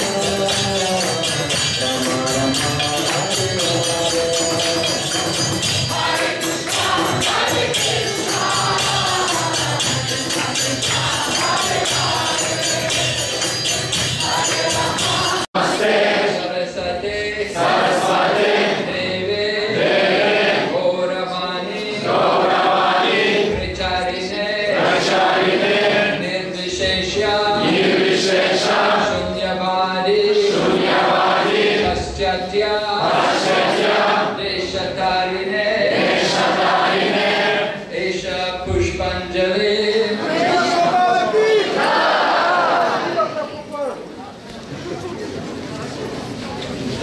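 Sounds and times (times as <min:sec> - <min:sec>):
crowd singing a chant: 0:00.0 - 0:43.2.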